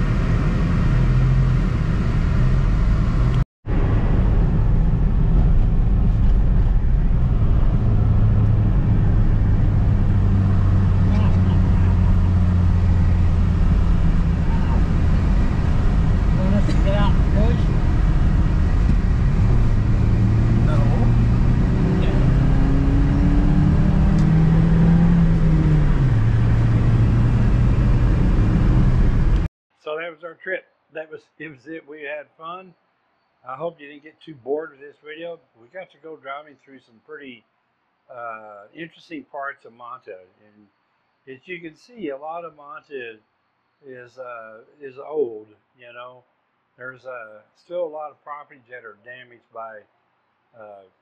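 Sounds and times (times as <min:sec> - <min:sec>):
car engine and road noise: 0:00.0 - 0:29.5.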